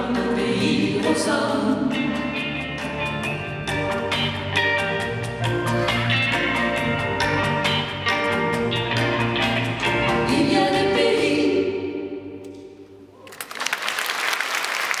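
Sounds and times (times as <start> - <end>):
women singing duet: 0.0 - 2.4, 10.0 - 12.5
audience applause: 13.2 - 15.0.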